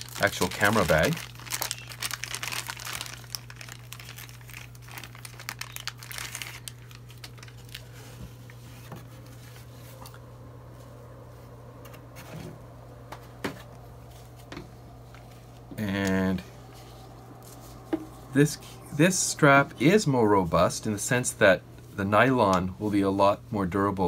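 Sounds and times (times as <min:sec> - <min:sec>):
plastic bag crinkling: 0:00.0 - 0:10.2
steady low hum: 0:00.0 - 0:24.0.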